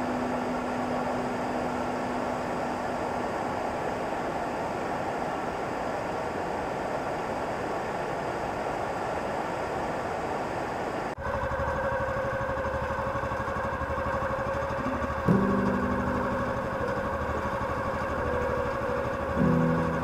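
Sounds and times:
boat engine running: 0.0 - 4.2, 11.2 - 20.0
river water flowing over rocks: 0.0 - 11.1.

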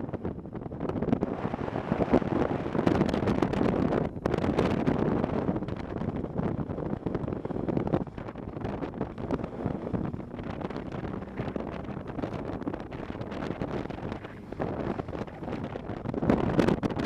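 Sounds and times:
wind buffeting microphone: 0.0 - 17.0
motorcycle engine running: 4.6 - 17.0.

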